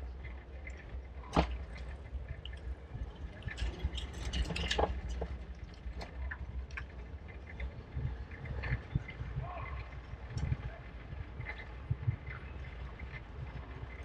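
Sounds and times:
wind and road rumble: 0:00.0 - 0:14.0
small clicks and rattles: 0:00.1 - 0:14.0.

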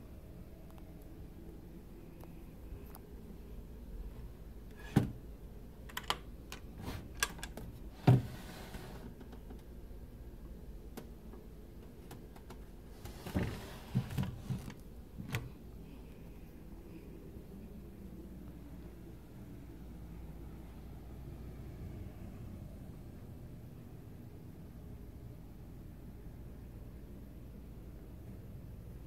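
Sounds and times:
drawer sliding scrape: 0:04.7 - 0:05.2, 0:06.8 - 0:07.2, 0:07.9 - 0:09.2, 0:12.9 - 0:14.8
drawer clicks and knocks: 0:04.8 - 0:05.2.

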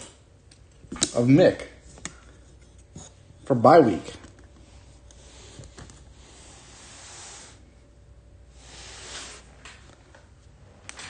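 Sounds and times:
faint hissing: 0:03.6 - 0:09.9.

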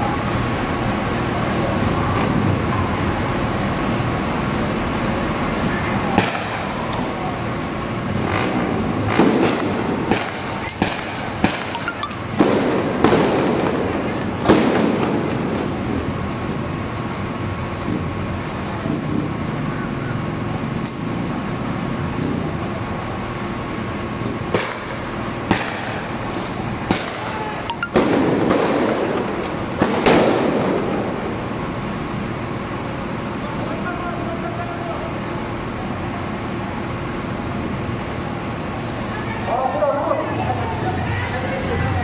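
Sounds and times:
steady background rush: 0:00.0 - 0:42.0
sharp explosive bangs echoing: 0:06.2 - 0:06.8, 0:09.1 - 0:15.6, 0:24.5 - 0:26.2, 0:27.9 - 0:31.3.

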